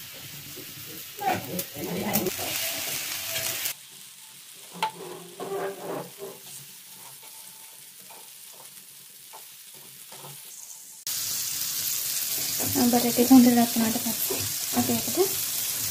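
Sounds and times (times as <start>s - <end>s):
fat sizzling in a frying pan: 0.0s - 15.9s
wooden spatula scraping a pan: 0.2s - 11.0s, 14.1s - 15.1s.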